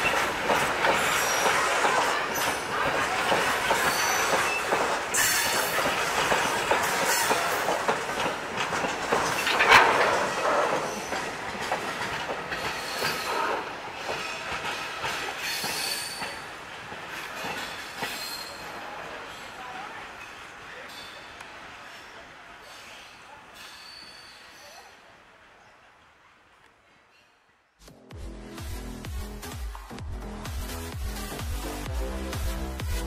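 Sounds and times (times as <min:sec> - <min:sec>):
high wheel squeal: 0:00.0 - 0:05.8, 0:12.7 - 0:14.4, 0:15.4 - 0:16.5, 0:17.3 - 0:18.8, 0:22.0 - 0:24.9
train wagons clattering over rails: 0:00.0 - 0:24.9.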